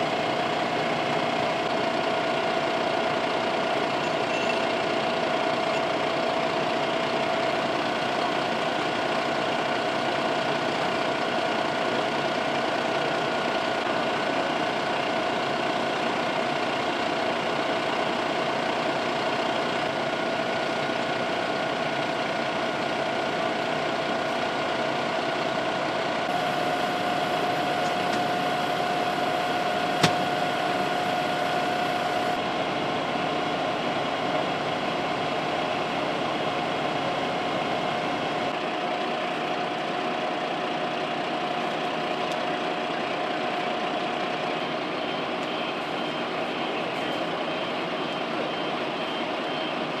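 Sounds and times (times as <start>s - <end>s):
engine motor hum and whine: 0.0s - 50.0s.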